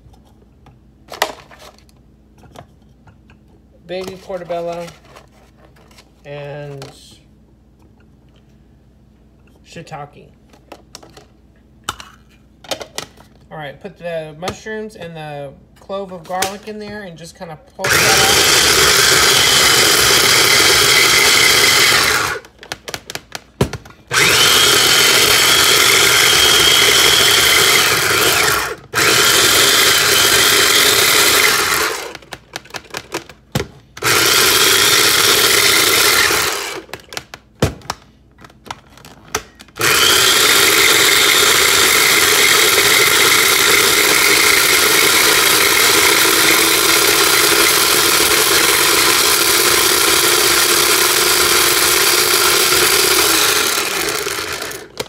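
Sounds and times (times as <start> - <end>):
food processor chopping: 17.8 - 23.2, 24.1 - 33.2, 34.0 - 37.3, 39.8 - 55.0.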